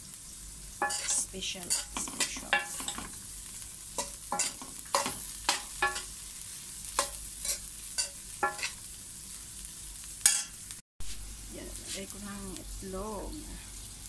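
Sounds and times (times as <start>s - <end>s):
sizzle of frying: 0.0s - 14.0s
spatula scraping steel pan: 0.8s - 3.2s, 4.0s - 6.1s, 7.0s - 8.8s.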